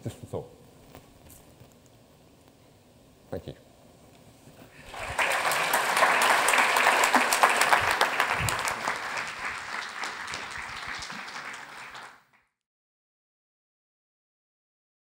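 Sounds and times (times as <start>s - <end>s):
audience applauding: 4.8s - 12.4s.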